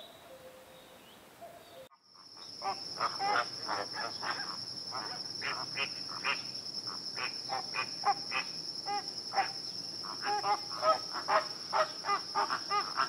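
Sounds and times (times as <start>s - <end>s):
steady high-pitched hum: 2.1s - 13.0s
flamingos honking: 2.6s - 6.4s, 7.2s - 13.0s.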